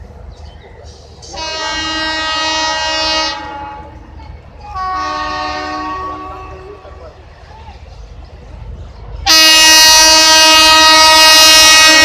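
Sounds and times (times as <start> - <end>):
locomotive horn blasts: 1.3 - 7.0, 9.2 - 12.0.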